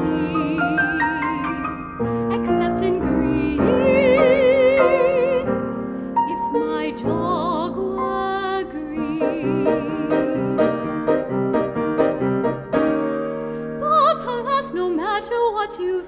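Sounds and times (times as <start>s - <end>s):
woman singing with vibrato: 0.0s - 5.6s, 6.3s - 10.9s, 13.8s - 16.0s
grand piano chords: 0.0s - 15.6s.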